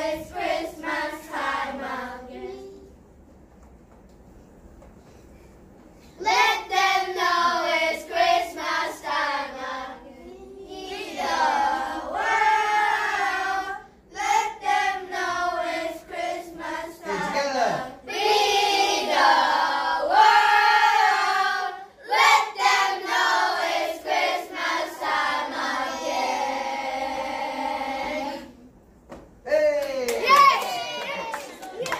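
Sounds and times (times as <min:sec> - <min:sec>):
children singing together: 0:00.0 - 0:02.9, 0:06.2 - 0:28.7.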